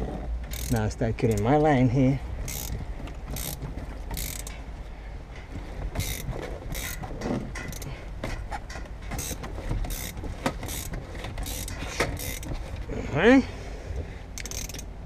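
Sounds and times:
ratchet wrench clicking: 0.5s - 1.5s, 2.4s - 4.6s, 6.0s - 7.0s, 7.6s - 7.9s, 9.2s - 12.6s, 14.4s - 14.9s.

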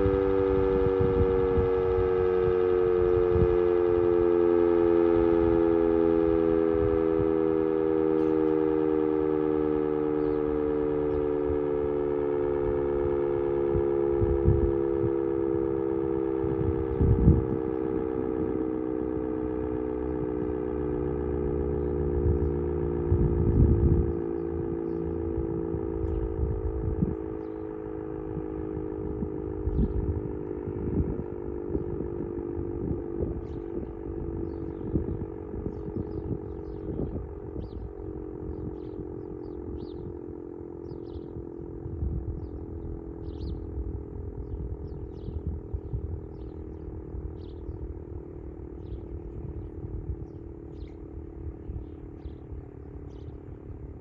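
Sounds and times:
warning siren winding down: 0.0s - 54.0s
low rumble: 16.3s - 40.2s, 40.8s - 54.0s.

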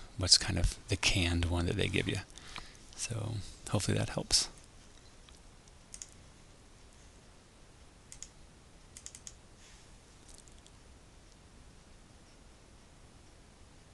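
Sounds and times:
faint computer clicks: 5.0s - 6.2s, 8.1s - 9.4s.

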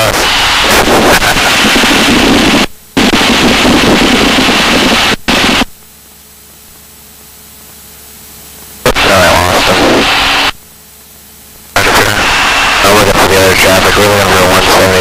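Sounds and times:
loud radio static hiss: 0.0s - 15.0s
low steady hum: 0.0s - 15.0s.

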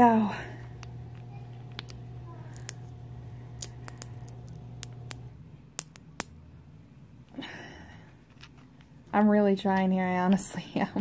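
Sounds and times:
shears squeezing almond clicks: 0.6s - 6.3s.

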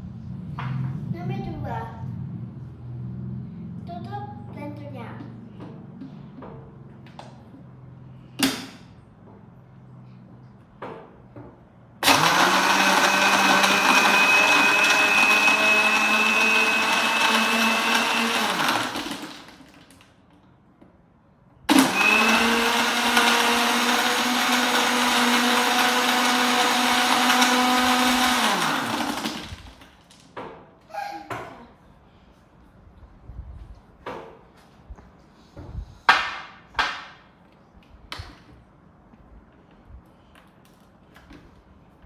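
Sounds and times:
blender running: 12.0s - 19.8s, 21.7s - 29.8s.

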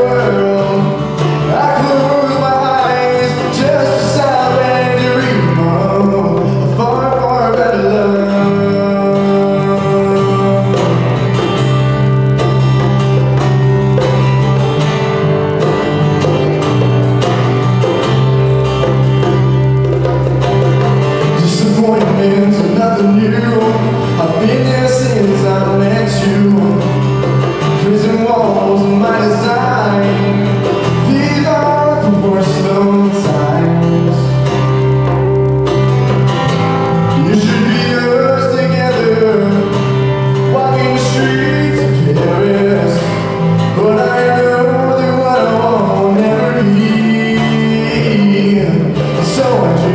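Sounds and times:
young man singing: 0.0s - 12.2s, 21.2s - 35.4s, 36.9s - 49.9s
acoustic guitar: 0.0s - 49.9s
bass guitar: 0.0s - 49.9s
bongos: 5.6s - 29.4s.

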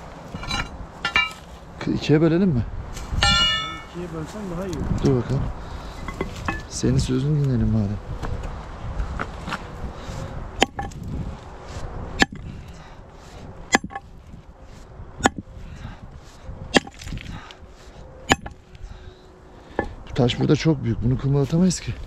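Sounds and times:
sledgehammer striking rock: 10.6s - 11.0s, 12.2s - 12.5s, 13.7s - 14.0s, 15.2s - 15.4s, 16.7s - 17.2s, 18.3s - 18.6s.

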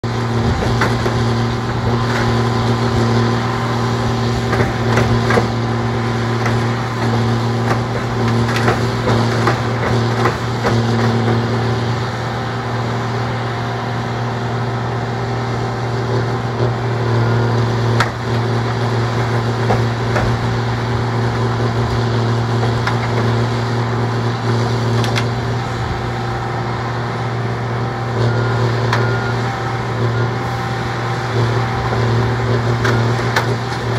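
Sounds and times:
machine engine running under load: 0.0s - 33.9s
knocks and clanks: 0.5s - 1.3s, 4.5s - 5.6s, 6.4s - 11.5s, 19.2s - 20.5s.

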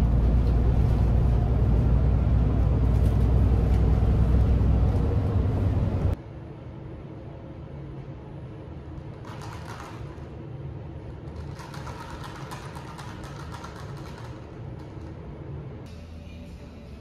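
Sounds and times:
elevator hum: 0.0s - 9.2s.

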